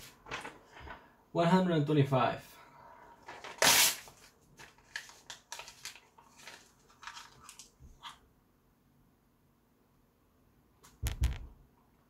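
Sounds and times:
paper ripping: 0:03.4 - 0:08.2.

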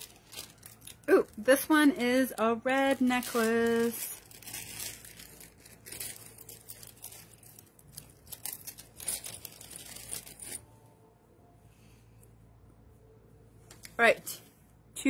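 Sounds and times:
packaging crinkling and tearing: 0:00.0 - 0:10.7.

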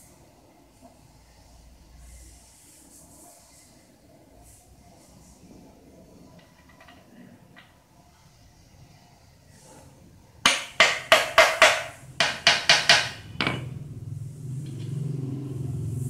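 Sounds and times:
small hammer tapping metal: 0:10.5 - 0:13.7.

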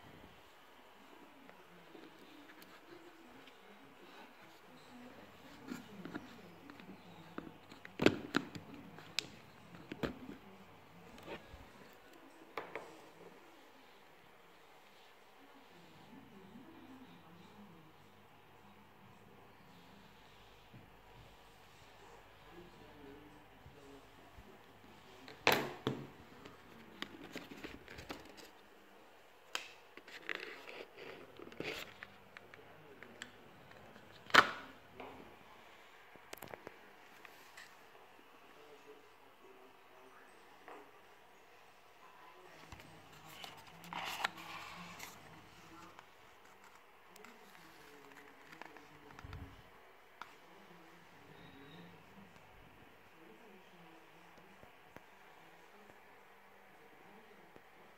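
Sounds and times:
phone and box handling noise: 0:25.4 - 0:28.5.

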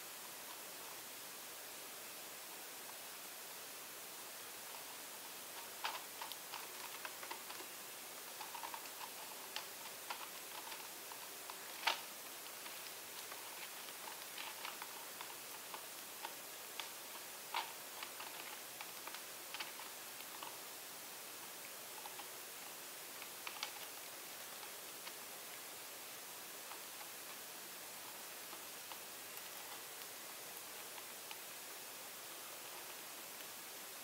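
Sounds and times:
steady hiss: 0:00.0 - 0:34.0
small clicks and crackles: 0:00.4 - 0:01.0, 0:04.5 - 0:34.0.

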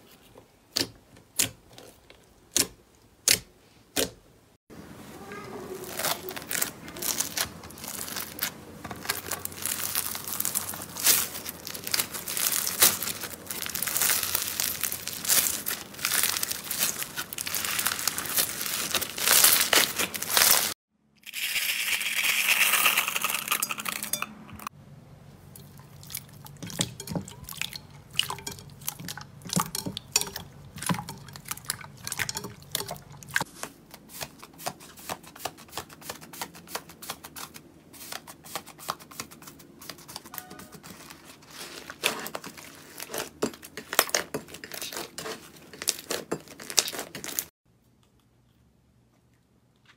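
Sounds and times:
foam beads crackling: 0:05.8 - 0:24.1.

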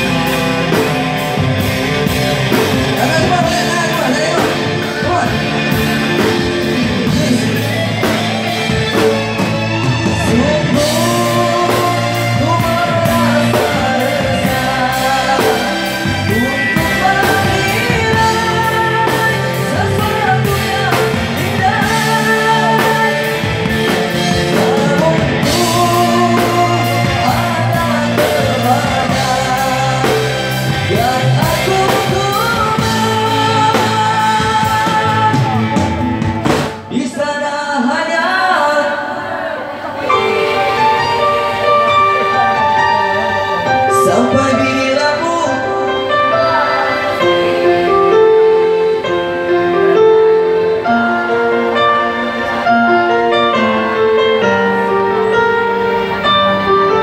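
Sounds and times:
drum kit: 0:00.0 - 0:37.2
bass guitar: 0:00.0 - 0:37.3, 0:40.0 - 0:57.0
electric guitars: 0:00.0 - 0:57.0
keyboard: 0:00.0 - 0:57.0
person singing: 0:00.0 - 0:57.0.

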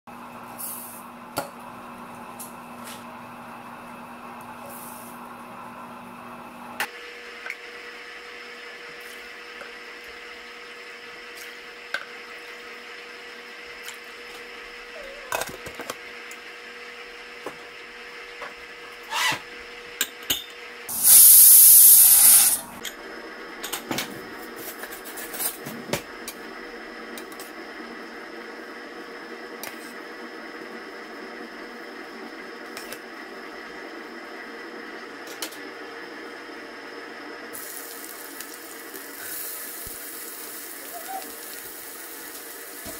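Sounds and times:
pressure cooker whistling: 0:20.9 - 0:22.7.

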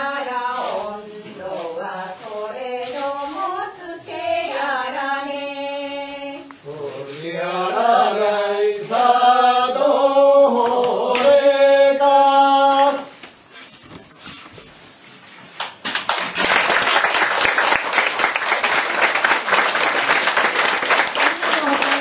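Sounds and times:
voices singing folk song: 0:00.0 - 0:14.5.

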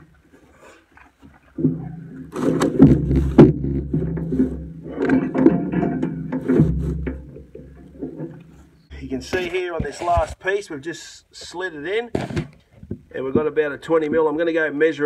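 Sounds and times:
plastic panel scraping against timber: 0:01.3 - 0:10.3, 0:12.1 - 0:12.6.

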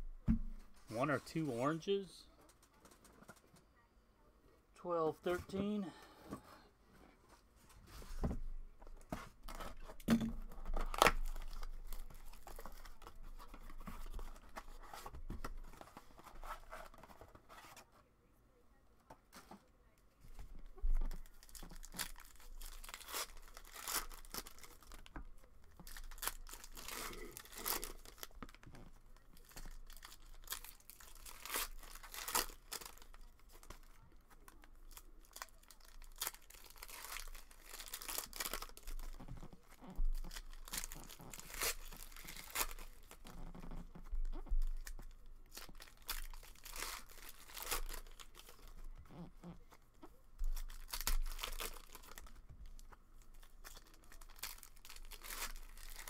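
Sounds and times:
wrappers ripping and crinkling: 0:09.5 - 0:15.1, 0:21.0 - 0:49.6, 0:50.4 - 0:56.0.

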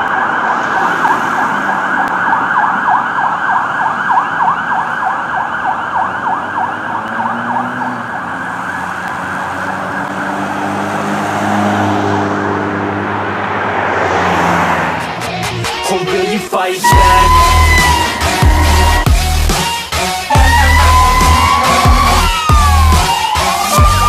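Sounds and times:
fire truck siren yelping: 0:00.0 - 0:12.4, 0:16.8 - 0:24.0
low droning tone: 0:16.9 - 0:19.5.

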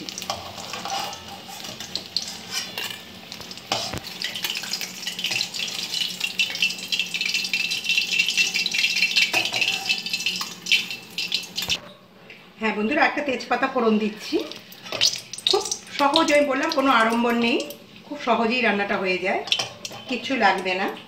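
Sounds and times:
oil sizzling and crackling: 0:00.0 - 0:11.8, 0:14.0 - 0:18.2, 0:19.5 - 0:21.0
metal spatula scraping pan: 0:00.3 - 0:03.1.

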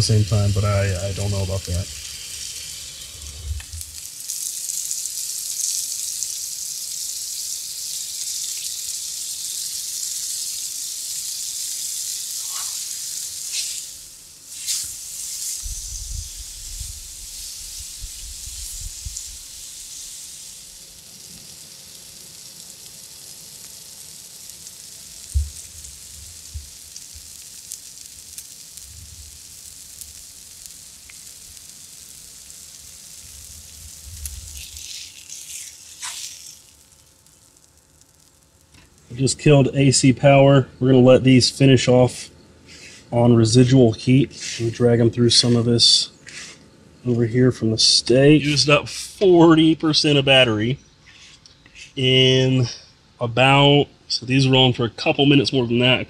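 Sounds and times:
food sizzling on a griddle: 0:00.0 - 0:39.5, 0:42.7 - 0:43.0, 0:44.4 - 0:44.8
spatula turning food: 0:02.1 - 0:22.0, 0:34.5 - 0:39.0.

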